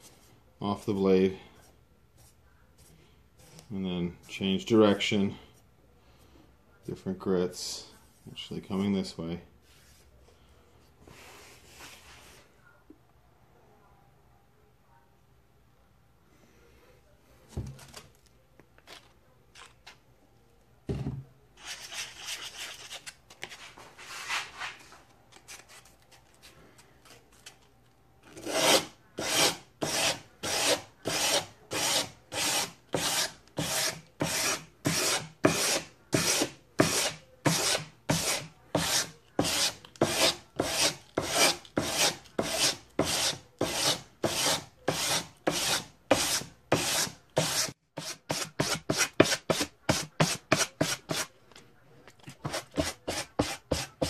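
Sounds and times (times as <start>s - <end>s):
sandpaper scraping steel blade: 28.4s - 51.3s.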